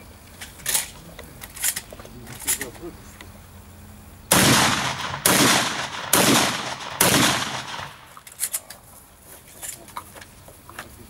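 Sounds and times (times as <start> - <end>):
gunshots with echo: 4.3 - 8.1.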